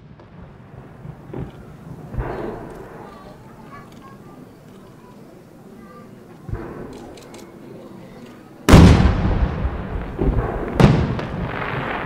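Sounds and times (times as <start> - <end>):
firework booms with rumbling echo: 0.0 - 3.6, 6.5 - 6.9, 8.7 - 12.0.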